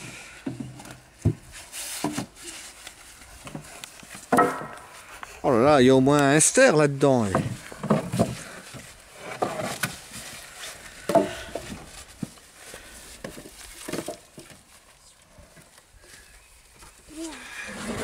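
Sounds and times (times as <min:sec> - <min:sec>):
logs knocking together: 0:03.4 - 0:05.0, 0:07.2 - 0:10.0, 0:11.0 - 0:12.3, 0:13.2 - 0:14.6.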